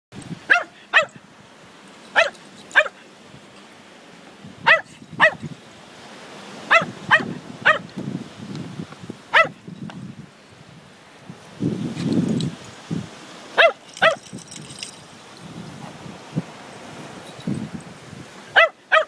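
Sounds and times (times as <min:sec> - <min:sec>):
dog play barks: 0:00.4 - 0:01.2, 0:02.1 - 0:03.0, 0:04.6 - 0:05.5, 0:06.7 - 0:07.9, 0:09.3 - 0:09.6, 0:13.6 - 0:14.3, 0:18.5 - 0:19.0.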